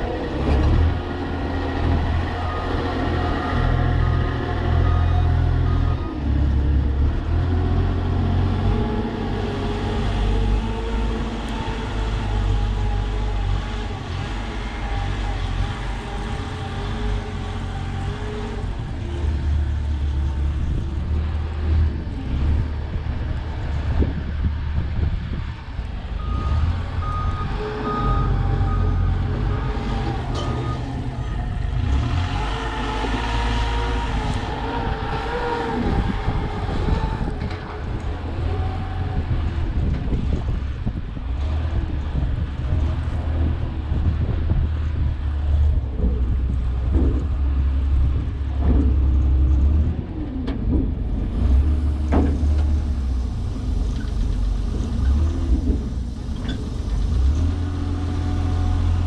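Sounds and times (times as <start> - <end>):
heavy vehicle engine rumbling: 0.0 - 59.0
reversing alarm beeps: 26.2 - 29.2.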